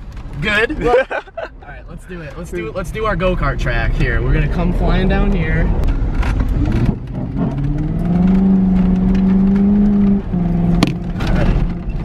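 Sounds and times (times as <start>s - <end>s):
car engine accelerating: 2.8s - 12.0s.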